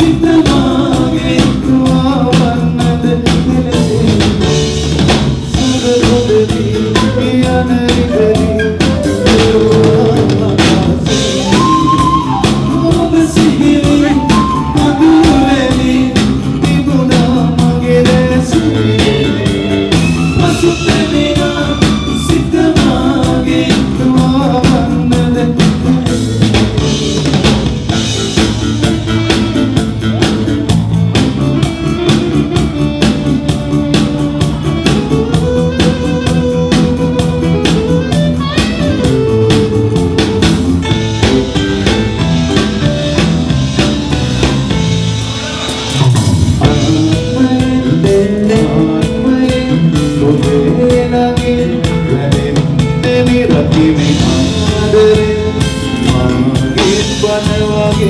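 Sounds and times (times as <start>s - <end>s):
man singing lead vocal: 0.0s - 27.4s, 45.3s - 58.0s
drum kit: 0.0s - 58.0s
electric bass: 0.0s - 58.0s
keyboards: 0.0s - 58.0s.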